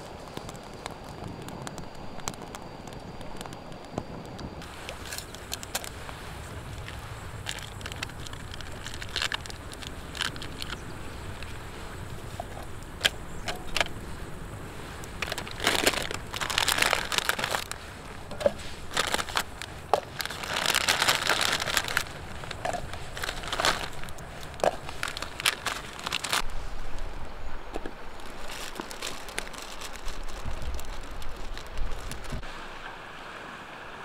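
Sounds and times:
wood fire crackling: 0.0 - 26.5
rustling hiss: 0.0 - 34.0.

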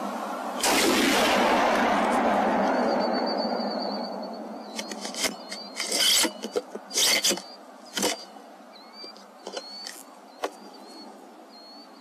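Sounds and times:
faint high chirps: 2.6 - 12.0
handling clicks and scraping: 4.7 - 8.4, 9.0 - 10.9.

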